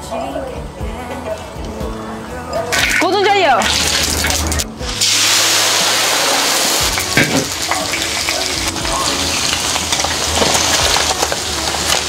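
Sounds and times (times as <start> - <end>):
hot oil sizzling and popping: 2.8 - 12.0.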